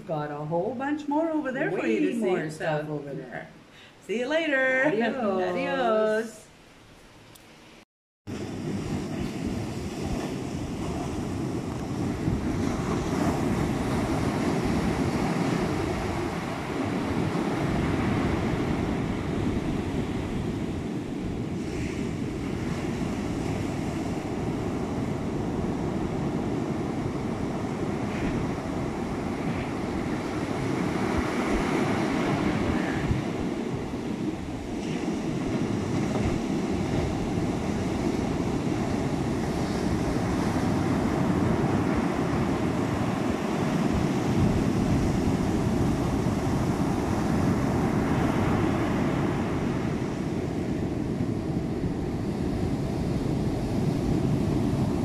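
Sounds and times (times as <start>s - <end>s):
storm surf breaking on beach: 8.3s - 55.0s
wind gusts on microphone: 8.3s - 55.0s.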